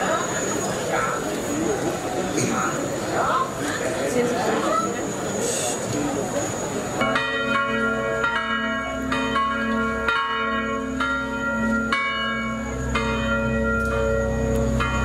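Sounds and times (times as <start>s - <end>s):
church bells ringing: 6.8s - 15.0s.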